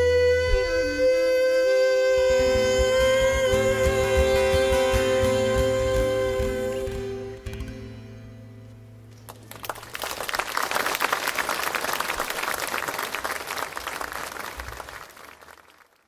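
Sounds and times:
audience applauding: 9.3s - 16.0s.

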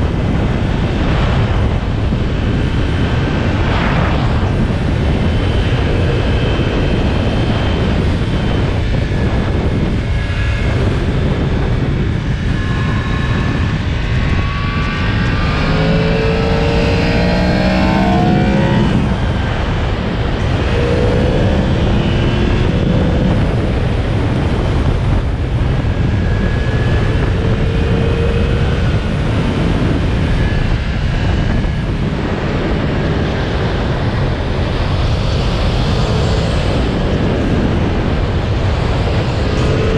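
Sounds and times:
wind on microphone: 0.0s - 39.9s
motorcycle engine revving: 0.1s - 39.9s.

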